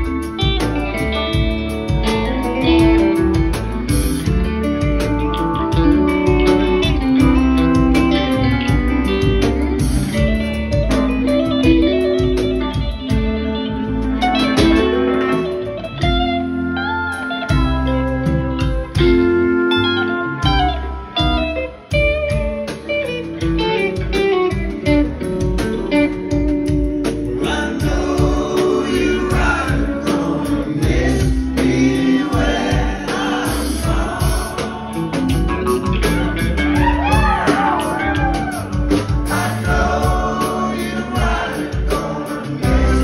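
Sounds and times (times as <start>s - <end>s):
electric guitar lines: 0.0s - 43.0s
rock band playing: 0.0s - 43.0s
men singing together: 27.2s - 36.1s, 39.0s - 43.0s.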